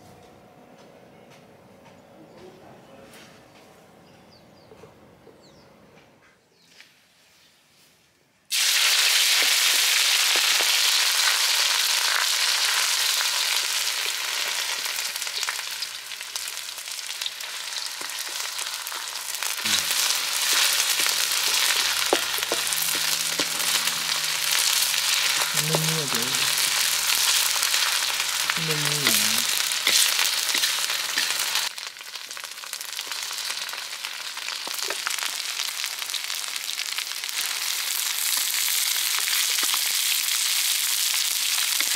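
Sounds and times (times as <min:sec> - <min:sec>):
curry sizzling in pan: 0:08.5 - 0:41.9.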